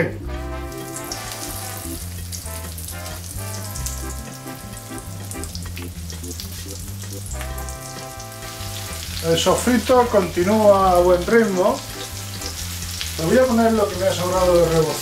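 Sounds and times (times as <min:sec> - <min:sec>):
background music with bass line: 0:00.0 - 0:15.0
meat frying in hot oil: 0:00.4 - 0:15.0.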